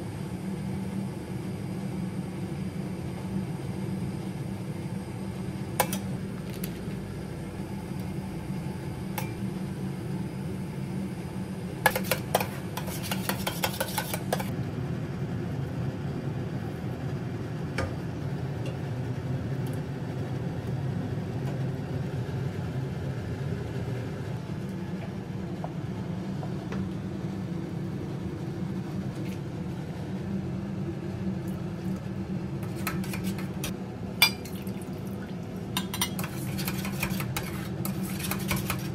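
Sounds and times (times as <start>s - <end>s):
steady low hum: 0.0s - 38.9s
metal spoon clinking on bowls: 34.2s - 34.5s, 35.8s - 36.8s.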